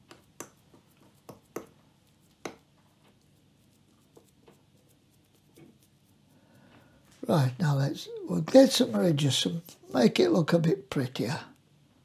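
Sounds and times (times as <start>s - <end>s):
fork clicks and taps: 0.0s - 2.7s.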